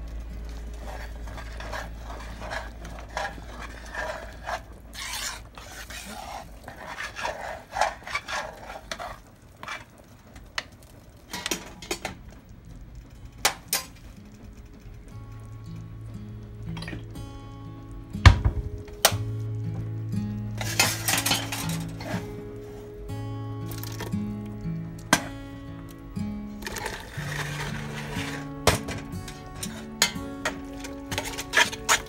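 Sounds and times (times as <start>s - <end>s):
spoon scraping saucepan: 0.7s - 10.0s, 20.6s - 22.4s, 26.6s - 32.0s.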